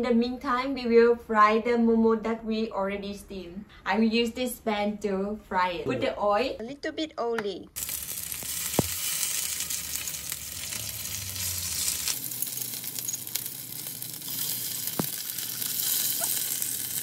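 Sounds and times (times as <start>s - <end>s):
dumplings sizzling in oil: 7.8s - 17.0s.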